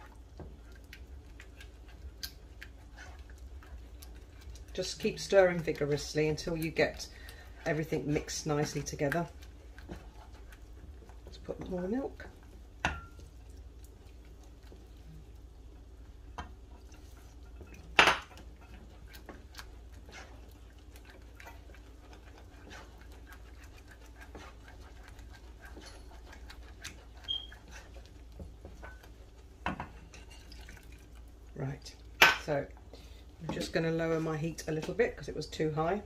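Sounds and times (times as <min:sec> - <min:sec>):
spoon scraping a saucepan: 0:22.2 - 0:28.0.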